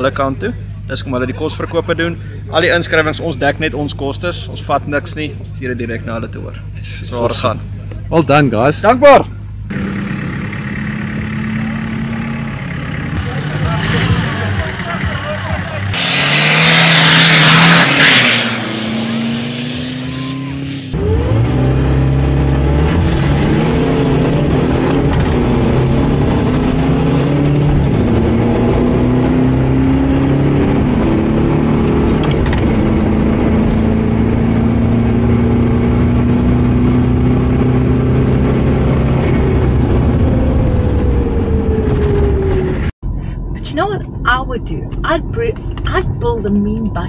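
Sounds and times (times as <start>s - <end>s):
pickup engine at full throttle: 9.3s - 43.5s.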